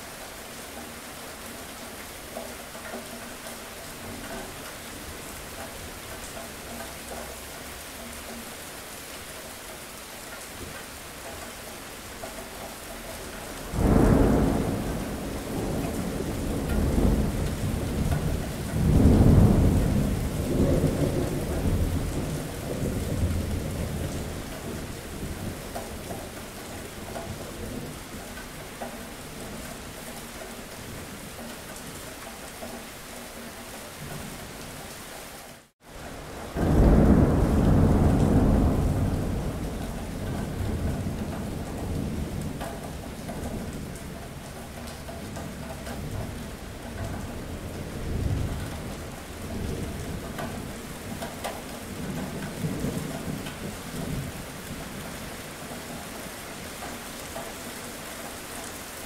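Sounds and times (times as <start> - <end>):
steady rain: 0.0 - 59.0
thunderclap and rumble: 13.6 - 28.4, 36.0 - 55.4.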